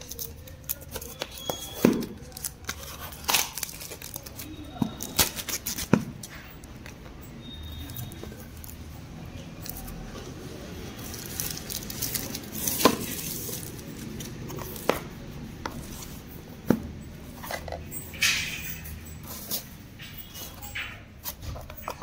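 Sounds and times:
plastic wrap rustling: 0.0 - 7.0, 7.8 - 15.2.

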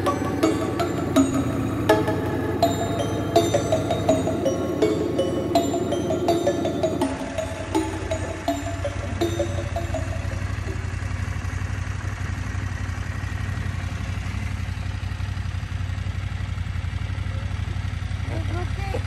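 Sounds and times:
background music: 0.0 - 11.0
motorcycle engine at low revs: 0.0 - 19.0.

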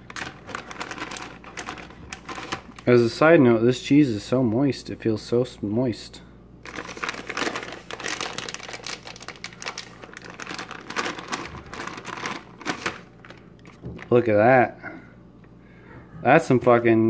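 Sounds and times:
plastic bag crinkling: 0.0 - 3.0, 6.6 - 14.3.

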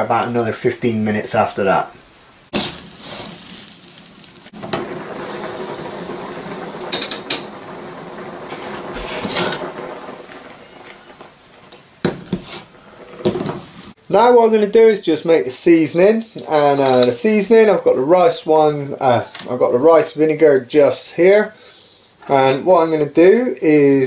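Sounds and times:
water bubbling in saucepan: 2.6 - 14.0.

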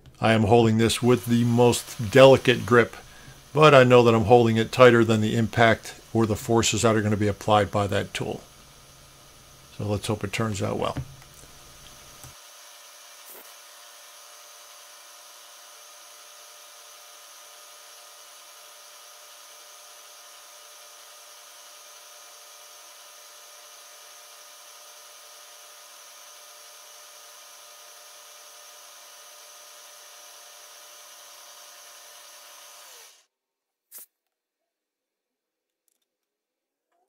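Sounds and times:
milling machine spindle whine: 0.4 - 25.0.

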